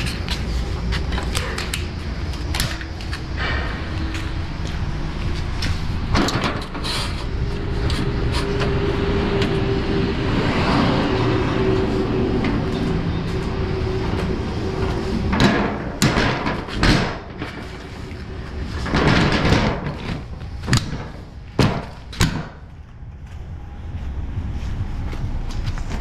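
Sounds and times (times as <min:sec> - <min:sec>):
lorry engine and road rumble: 0:00.0 - 0:26.0
steady whine: 0:00.0 - 0:26.0
loud sharp knocks: 0:15.3 - 0:17.7, 0:18.8 - 0:22.6.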